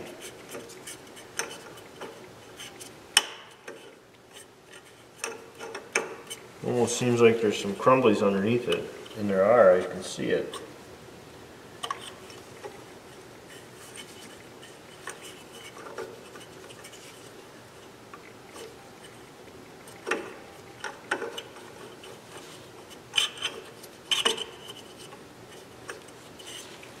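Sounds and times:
clicks and taps of parts: 3.2 - 3.9, 20.0 - 21.5
light scraping of metal: 11.9 - 17.9, 19.9 - 27.0.

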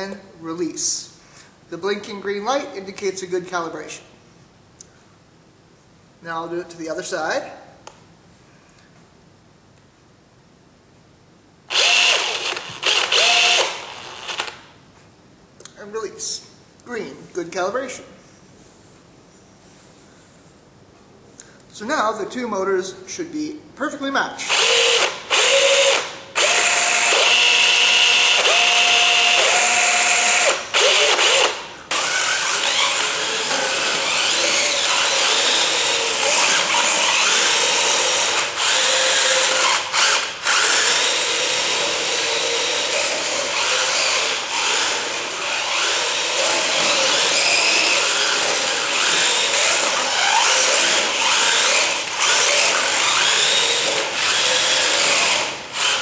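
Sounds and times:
electric wheel motors whining: 24.5 - 56.0.

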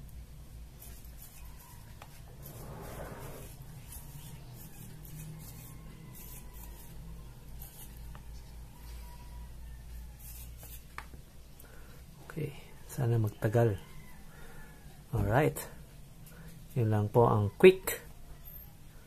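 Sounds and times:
soldering tip scratching metal wool: 1.2 - 7.0.

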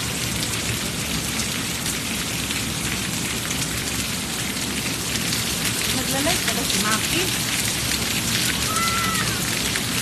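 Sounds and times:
heavy rain pouring: 0.0 - 10.0.

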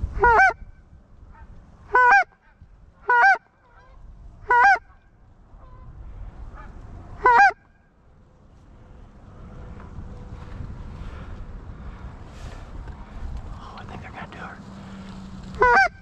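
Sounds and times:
goose honking: 1.3 - 5.0, 6.6 - 7.7, 15.6 - 16.0.

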